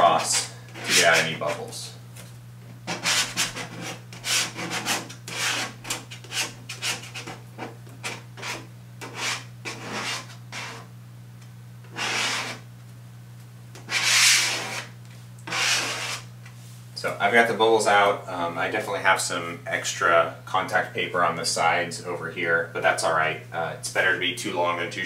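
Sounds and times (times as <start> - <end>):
card scraping on contact paper: 0.0 - 1.6, 2.9 - 10.9, 11.9 - 12.6, 13.8 - 16.3.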